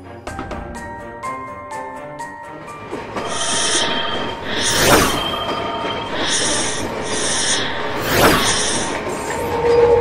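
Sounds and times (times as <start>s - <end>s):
whoosh sound effects: 3.2s - 9.2s.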